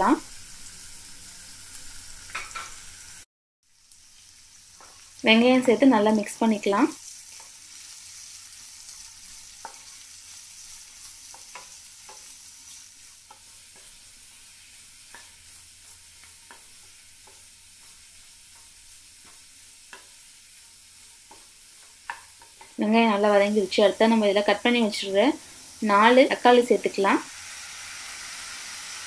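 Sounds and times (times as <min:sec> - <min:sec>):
onions sizzling in a pan: 0:00.0 - 0:29.0
wooden spatula scraping a pan: 0:07.1 - 0:23.4.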